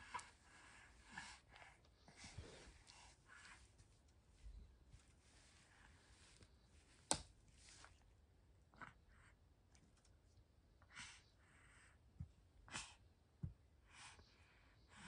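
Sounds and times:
soft rustles: 1.8s - 8.2s.

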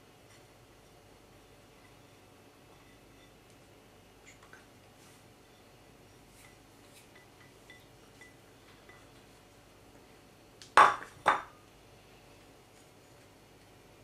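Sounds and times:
glass bowl clinking: 7.1s - 9.1s.

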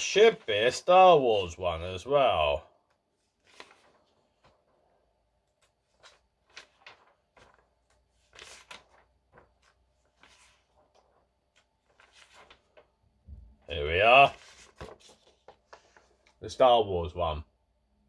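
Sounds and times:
magazine pages rustling: 0.0s - 0.9s, 3.0s - 16.4s.

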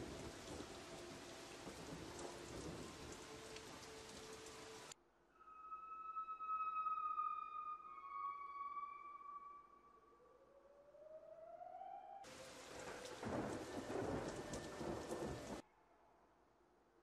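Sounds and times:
thunderstorm sound effect: 12.3s - 15.6s.

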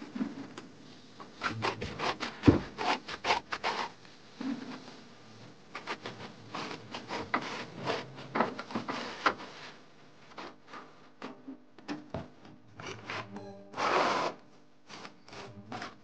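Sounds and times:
hand tool scraping a wall: 1.4s - 4.8s, 5.8s - 9.8s, 13.1s - 16.0s.

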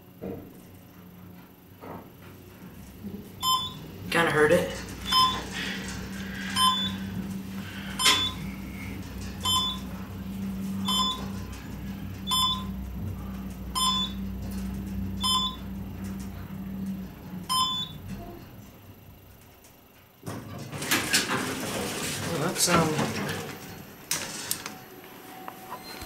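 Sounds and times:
elevator drive motor hum: 0.0s - 26.0s
short electronic beeps: 3.4s - 3.8s, 5.1s - 5.4s, 6.6s - 7.0s, 8.0s - 8.4s, 9.4s - 9.8s, 10.8s - 11.3s, 12.3s - 12.7s, 13.8s - 14.2s, 15.2s - 15.6s, 17.5s - 18.0s.

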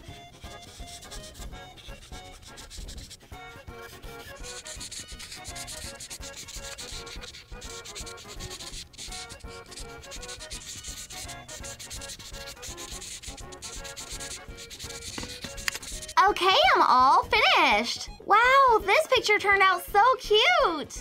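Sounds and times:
marker scrubbing on paper: 0.4s - 16.2s.

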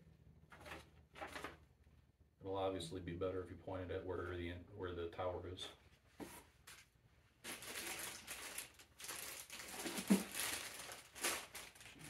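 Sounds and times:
plastic packaging crinkling: 7.4s - 12.0s.

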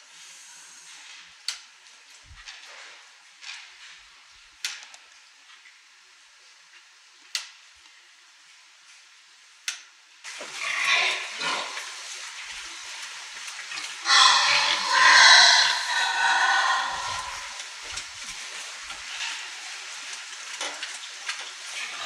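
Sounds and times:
sows grunting roughly: 10.5s - 12.1s, 14.1s - 17.7s.

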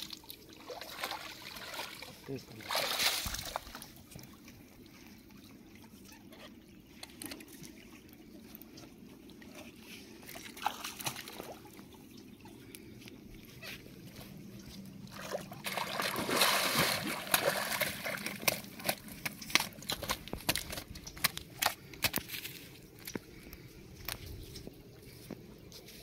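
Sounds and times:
fish splashing in water: 0.0s - 4.0s, 15.0s - 21.9s
river water sloshing and trickling: 0.0s - 26.0s.

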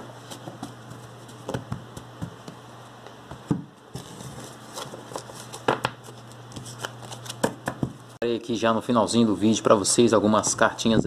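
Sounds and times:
steady low hum: 0.0s - 11.0s
trading cards flicking and rustling: 0.2s - 8.1s.

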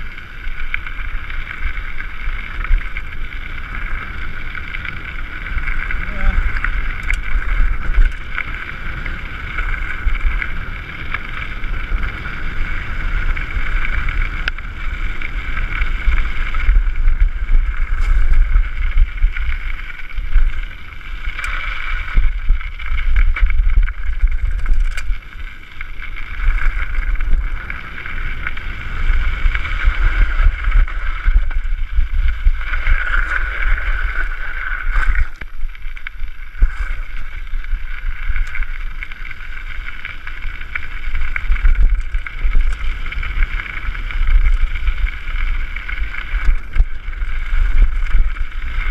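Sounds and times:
tyres crunching on gravel: 0.0s - 48.9s
wind buffeting microphone: 4.0s - 35.5s.

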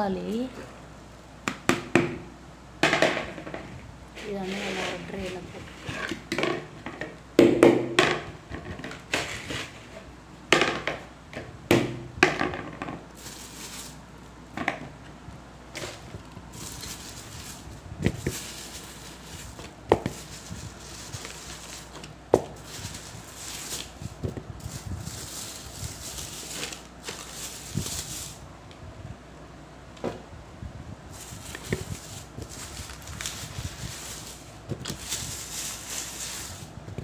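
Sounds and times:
plastic packets rustling: 13.2s - 14.0s, 15.8s - 28.4s, 31.1s - 36.7s.

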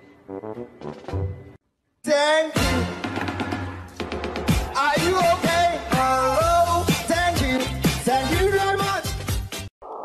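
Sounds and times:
upbeat pop music: 2.1s - 9.7s.

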